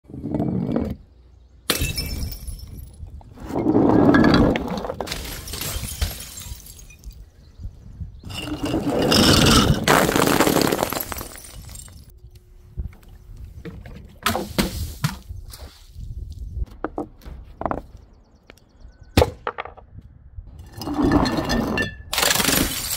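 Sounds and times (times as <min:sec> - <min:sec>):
glass bottles shattering: 0:01.7 - 0:03.0, 0:04.2 - 0:07.2, 0:08.3 - 0:12.1, 0:21.1 - 0:22.9
tinkle of falling glass shards: 0:05.3 - 0:07.2, 0:10.6 - 0:12.1.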